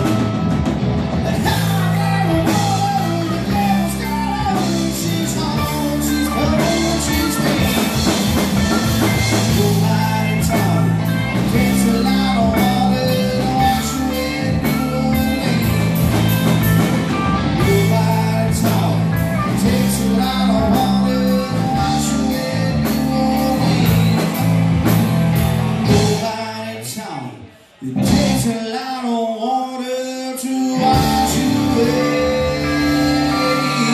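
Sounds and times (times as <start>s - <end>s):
live rock band playing: 0.0s - 27.0s, 27.8s - 28.8s, 30.1s - 33.9s.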